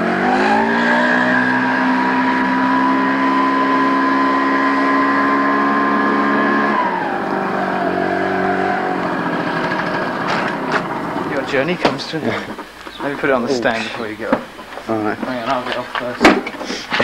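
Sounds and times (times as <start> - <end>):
motor scooter engine: 0.0 - 13.4.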